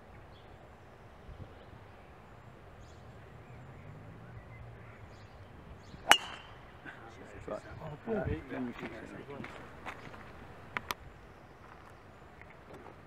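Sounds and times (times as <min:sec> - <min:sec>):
golf club striking ball: 0:06.0 - 0:06.7.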